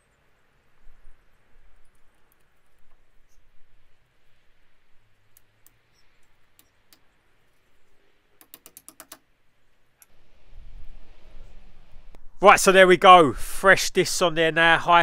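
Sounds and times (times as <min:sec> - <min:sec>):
small hammer tapping metal pin: 0:08.4 - 0:09.2.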